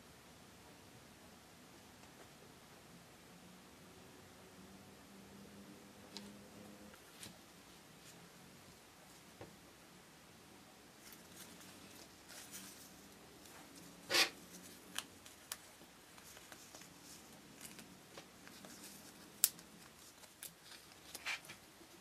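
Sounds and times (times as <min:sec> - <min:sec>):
paper rustling and crinkling: 0:11.0 - 0:21.6.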